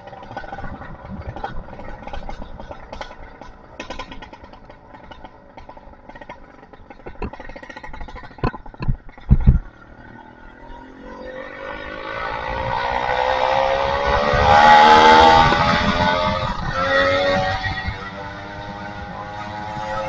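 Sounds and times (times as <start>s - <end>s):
two-stroke engine popping and revving: 0.0s - 20.0s
loud thumps: 7.0s - 9.7s.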